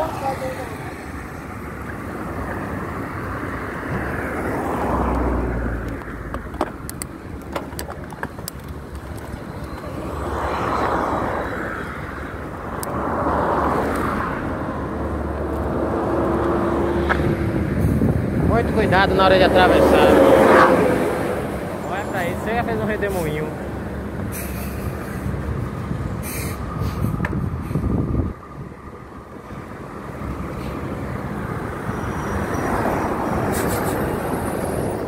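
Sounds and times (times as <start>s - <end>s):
vehicles passing by: 0.0s - 35.0s
wind on microphone: 3.6s - 21.8s, 23.8s - 35.0s
bike rattling clicks: 5.8s - 9.9s.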